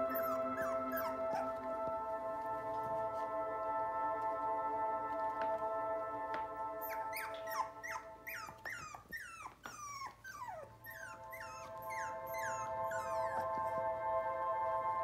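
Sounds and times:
puppies whimpering and yipping: 0:00.0 - 0:01.8, 0:06.8 - 0:13.9.

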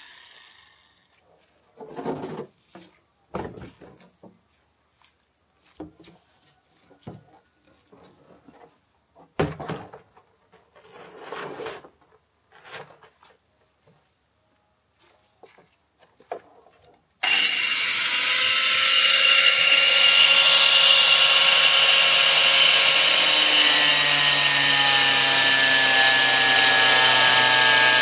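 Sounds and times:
barrel scraping on ground: 0:01.3 - 0:04.2, 0:07.8 - 0:13.5
plastic barrels knocking and thumping: 0:09.3 - 0:10.1.

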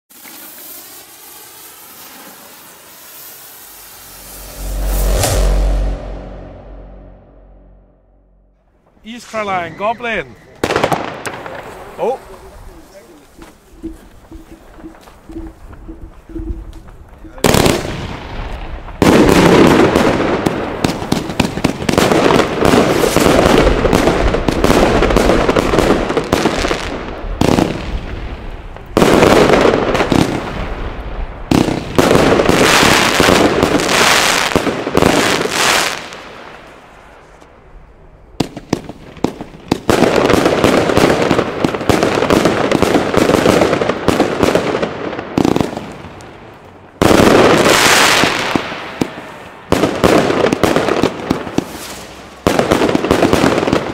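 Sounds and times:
firework battery launches and bursts: 0:00.1 - 0:07.0, 0:14.7 - 0:36.8, 0:50.2 - 0:53.9.

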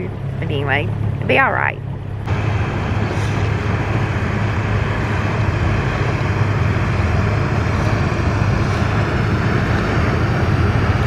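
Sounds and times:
outboard motor humming: 0:00.0 - 0:11.0
wind and water rushing: 0:02.2 - 0:11.0.

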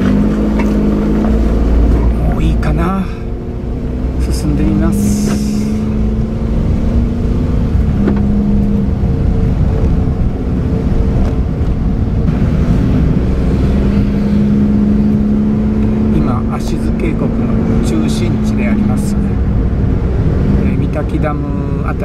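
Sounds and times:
car engine drone: 0:00.0 - 0:22.0
tyres rumbling on road: 0:00.0 - 0:22.0.

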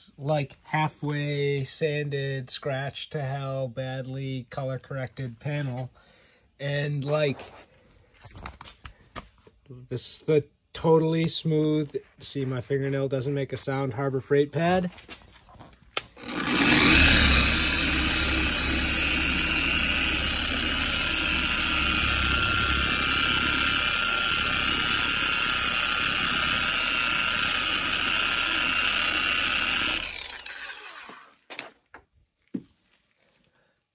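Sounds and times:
orbital sander running: 0:16.2 - 0:31.3.

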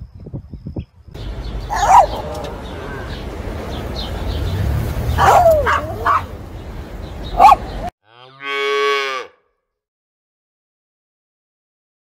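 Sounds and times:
small dog yelping: 0:01.7 - 0:02.6, 0:05.2 - 0:06.3, 0:07.4 - 0:07.7
cow mooing: 0:08.0 - 0:09.5.

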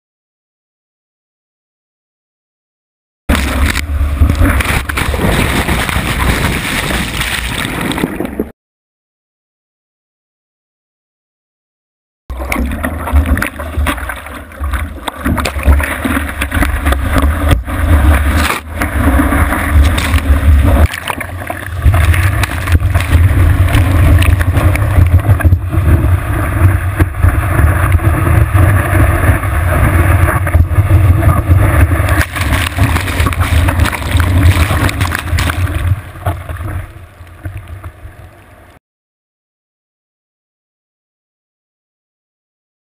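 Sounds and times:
water rushing and splashing: 0:03.3 - 0:08.5, 0:12.3 - 0:38.8.

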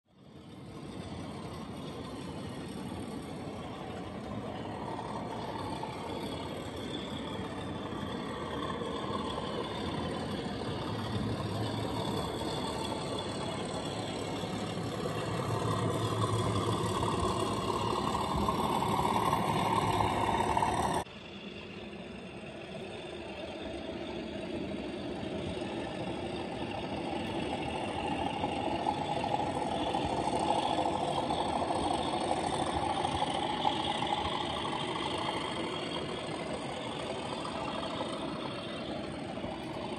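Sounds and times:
model diesel locomotive engine: 0:00.0 - 0:39.9
model wagons rumbling on track: 0:00.1 - 0:39.9.

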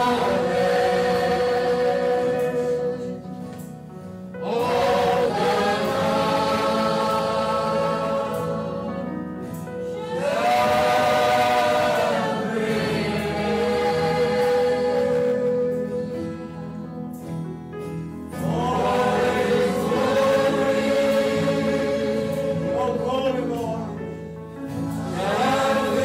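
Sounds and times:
choir singing sacred music: 0:00.0 - 0:17.4, 0:18.2 - 0:26.0.

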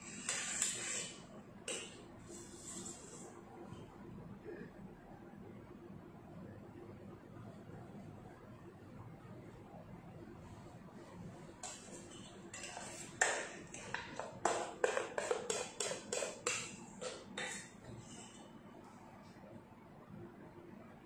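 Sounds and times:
spatula scraping metal bowl: 0:00.0 - 0:03.2, 0:11.6 - 0:18.4.

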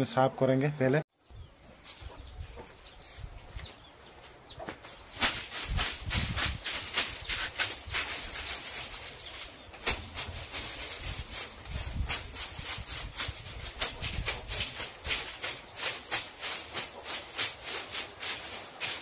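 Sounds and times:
broom swishing: 0:05.1 - 0:19.0.

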